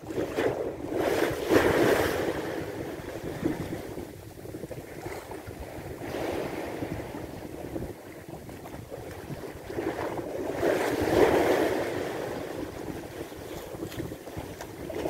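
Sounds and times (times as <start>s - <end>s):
waves washing against shore: 0.0s - 15.0s
wind buffeting microphone: 0.0s - 15.0s.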